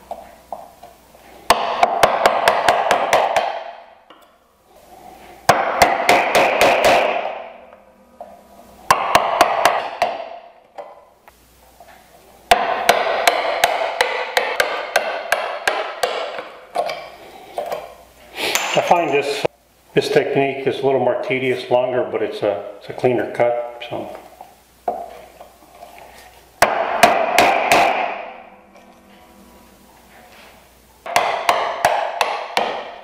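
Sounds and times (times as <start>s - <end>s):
mallet striking chisel: 5.5s - 7.5s, 8.9s - 10.4s, 12.5s - 17.0s, 26.6s - 28.4s, 31.1s - 33.0s.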